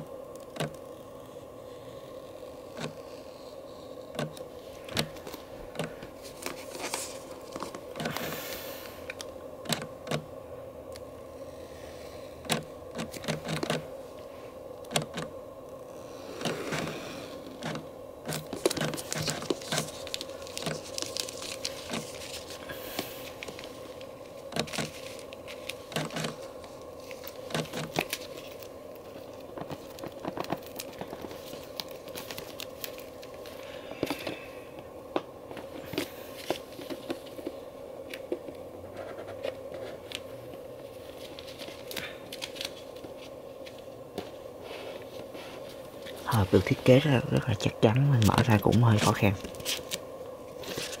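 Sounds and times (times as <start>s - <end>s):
faint steady hum: 0.0s - 51.0s
shrink-wrap crinkling and tearing: 4.1s - 10.2s, 15.9s - 34.5s, 40.9s - 43.9s, 48.2s - 51.0s.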